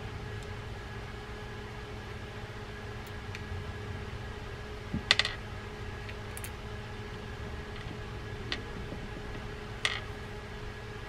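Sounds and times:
faint steady hum: 0.0 - 11.0
small clicks from reel parts: 6.0 - 6.6.

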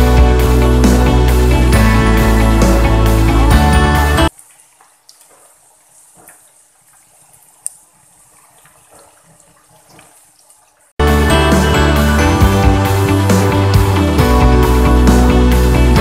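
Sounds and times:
background music: 0.0 - 4.3, 11.0 - 16.0
oil popping: 4.3 - 11.0.

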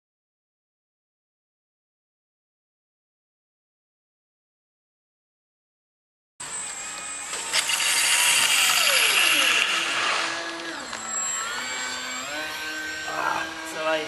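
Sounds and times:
model plane motor and propeller: 6.4 - 14.0.

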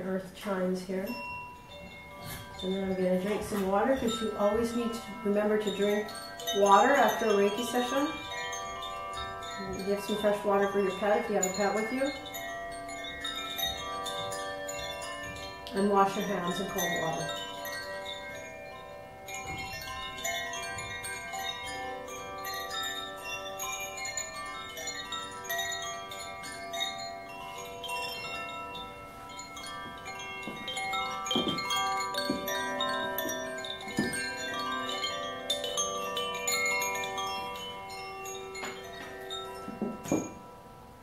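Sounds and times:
bamboo chimes ringing: 1.1 - 41.0.

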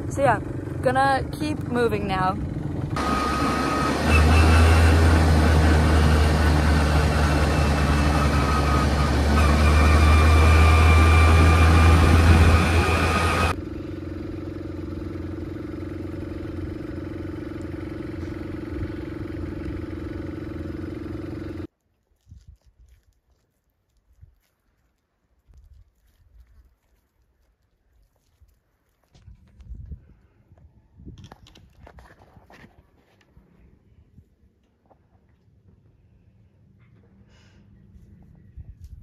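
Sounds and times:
quad bike engine running: 0.0 - 21.7
wind rumble on microphone: 29.1 - 32.8, 38.2 - 39.0.

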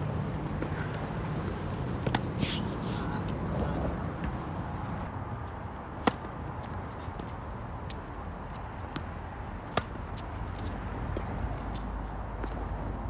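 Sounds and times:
tennis ball bouncing: 0.4 - 4.4, 6.0 - 8.0, 8.8 - 11.8
tennis racket hitting ball: 1.4 - 3.2, 6.0 - 6.8, 9.7 - 11.3.

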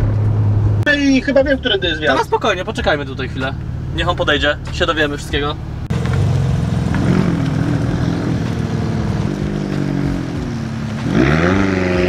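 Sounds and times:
car engines driving past: 0.0 - 12.0
steady engine note: 0.3 - 12.0.

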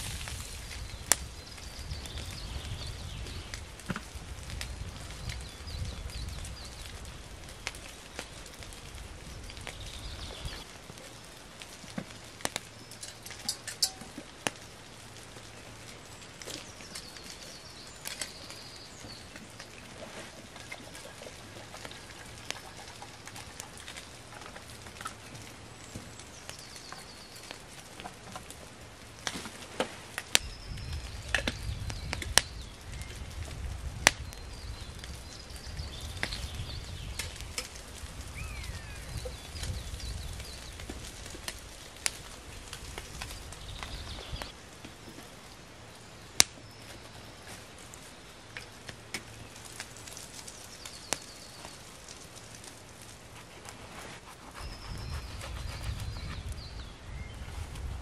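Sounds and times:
wood fire burning: 0.0 - 58.0
birds calling: 16.5 - 28.2, 38.2 - 40.8, 54.2 - 57.5.

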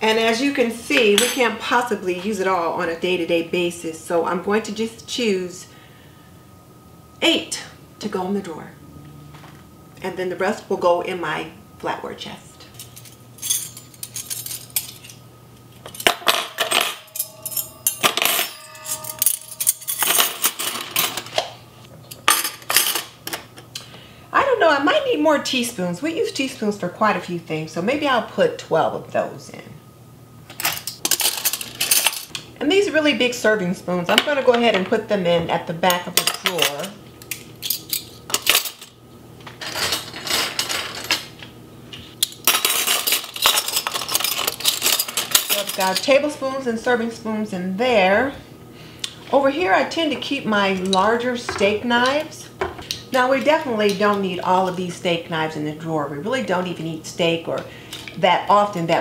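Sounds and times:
metal forks clinking: 12.8 - 15.2, 15.9 - 21.4, 42.2 - 46.1
metal ringing: 16.0 - 21.5.

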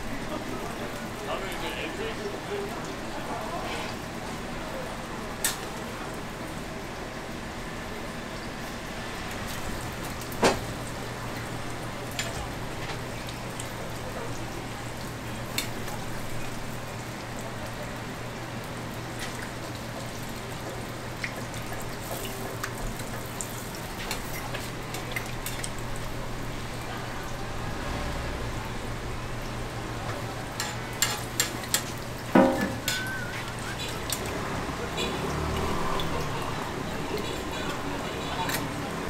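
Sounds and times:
pancakes frying in oil: 0.0 - 39.0
metal spatula clinking on griddle: 30.6 - 33.2.

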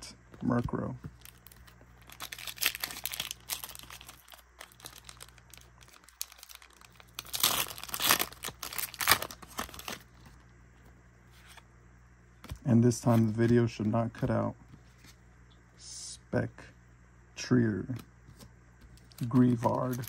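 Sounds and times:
foil wrapper crinkling and tearing: 1.2 - 10.1, 19.2 - 20.0.

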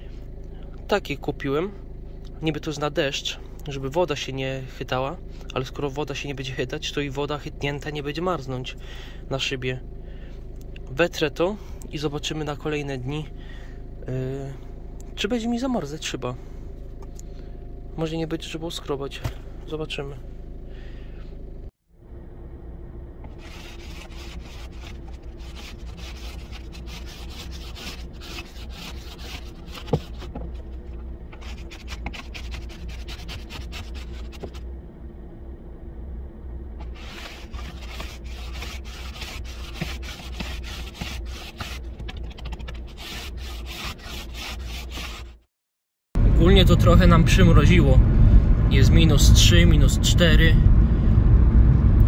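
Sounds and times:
steady low hum: 0.0 - 45.5, 46.2 - 52.0
ice scraper scraping windscreen: 23.3 - 34.6, 36.8 - 45.4.

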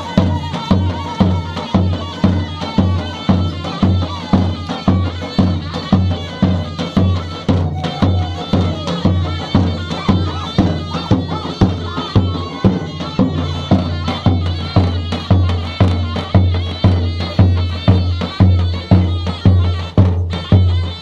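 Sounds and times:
large drum beating: 0.0 - 20.8.

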